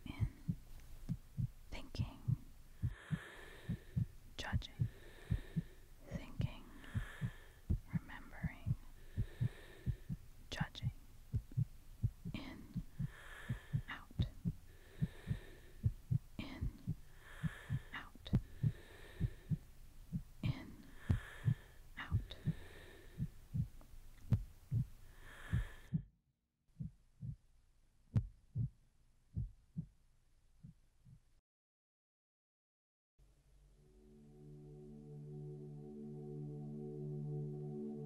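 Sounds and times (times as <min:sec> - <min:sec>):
soft hiss: 0:00.0 - 0:25.8
heartbeat thumps: 0:00.0 - 0:26.1, 0:26.8 - 0:27.4, 0:28.1 - 0:30.0, 0:30.6 - 0:31.3.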